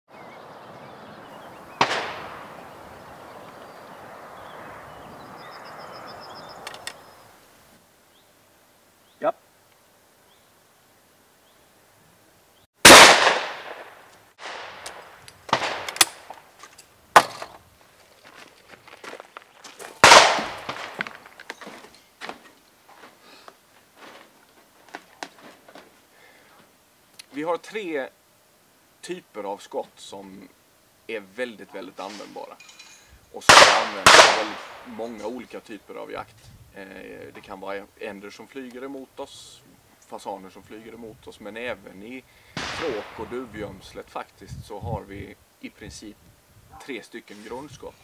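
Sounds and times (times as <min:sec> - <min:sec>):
bird trilling: 0:00.1 - 0:07.4
outdoor hush: 0:00.1 - 0:48.0
shotgun shot echoing: 0:01.7 - 0:02.8, 0:12.9 - 0:16.4, 0:20.0 - 0:21.2, 0:33.5 - 0:35.0, 0:42.6 - 0:43.6
sharp clicks: 0:06.6 - 0:07.1, 0:13.3 - 0:16.4.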